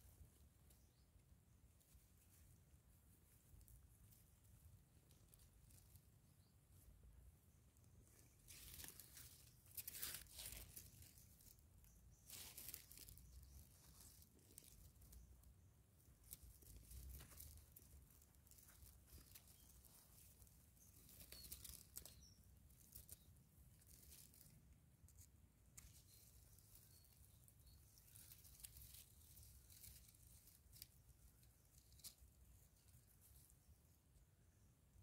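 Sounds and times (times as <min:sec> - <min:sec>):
hand digging in dry soil: 0:16.2 - 0:24.5.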